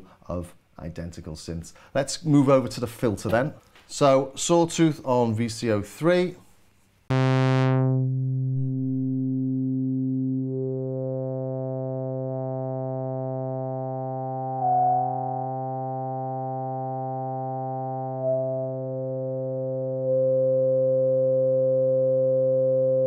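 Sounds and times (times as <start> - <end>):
synthesizer low sawtooth note: 7.1 - 23.0.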